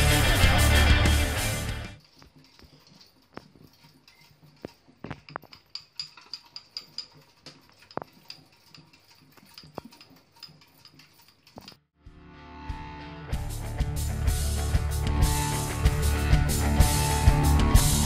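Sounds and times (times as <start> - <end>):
music: 0.0 - 2.0, 12.0 - 18.0.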